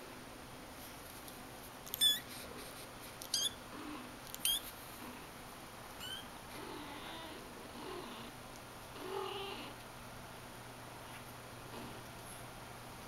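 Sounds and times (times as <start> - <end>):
kitten mewing: 6.0 - 7.4.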